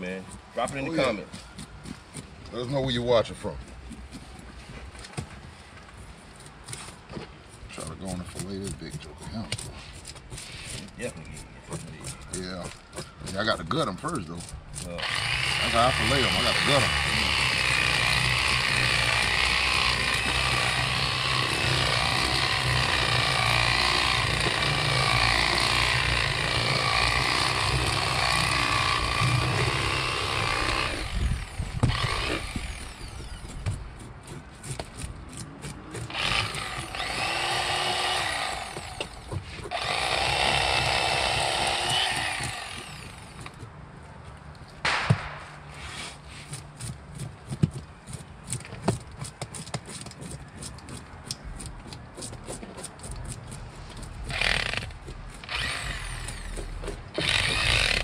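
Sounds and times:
electric knife motor buzz: 15.0 - 33.4, 39.7 - 43.1, 54.3 - 56.5, 57.2 - 58.0.

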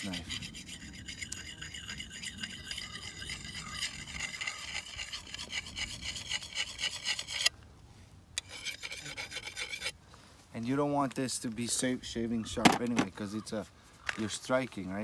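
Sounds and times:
stone scraping knife edge: 0.0 - 7.5, 8.4 - 10.0.

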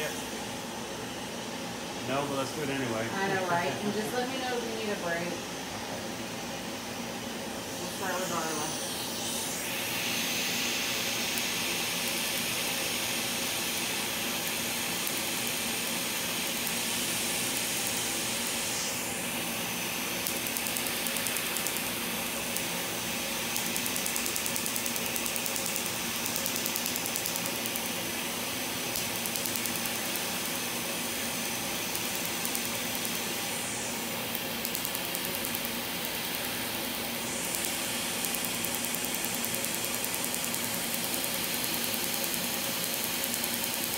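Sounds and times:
laser clicking pulses: 20.2 - 21.9, 23.4 - 28.0, 28.8 - 30.6, 31.8 - 33.3, 34.3 - 36.8, 37.4 - 43.9.

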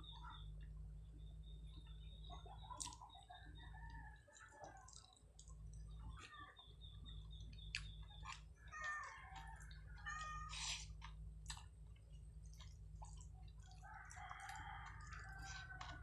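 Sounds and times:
animals calling: 5.9 - 10.8.

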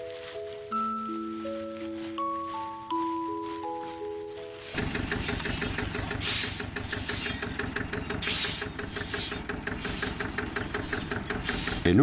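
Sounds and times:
tractor engine running: 4.5 - 12.0
short bursts of hiss: 6.1 - 7.4, 11.4 - 11.9.

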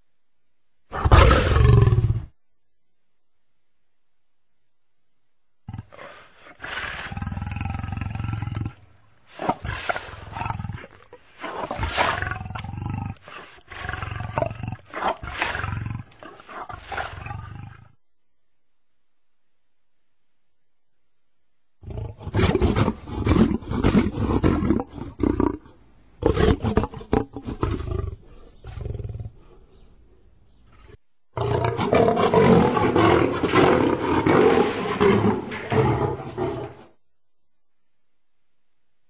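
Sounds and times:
lion roaring and grunting: 5.7 - 8.8, 9.4 - 17.9, 21.8 - 29.6, 31.4 - 36.9.

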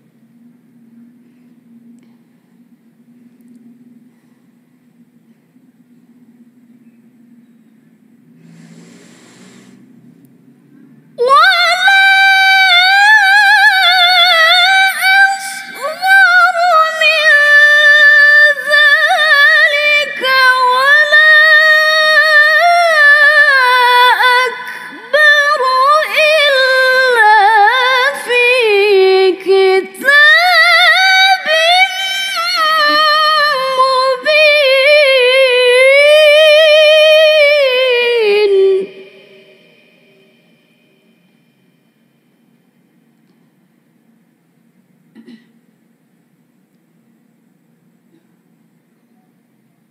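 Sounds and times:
woman reciting melodically: 11.2 - 40.0.

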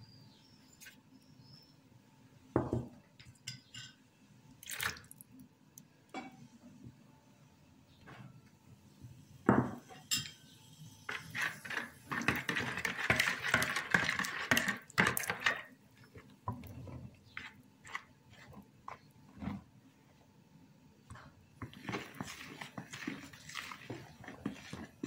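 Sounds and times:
spoon stirring batter in bowl: 11.1 - 19.7, 21.1 - 25.0.

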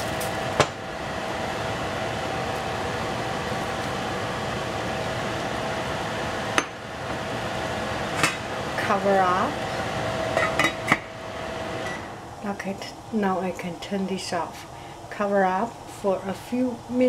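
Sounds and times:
tomatoes sizzling in a saucepan: 0.0 - 10.9
faint steady hum: 0.0 - 17.0.

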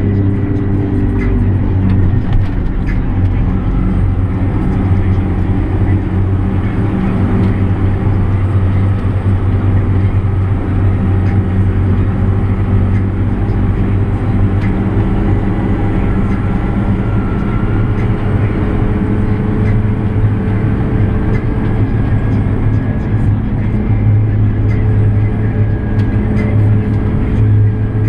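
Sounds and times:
tractor engine humming: 0.0 - 28.0.

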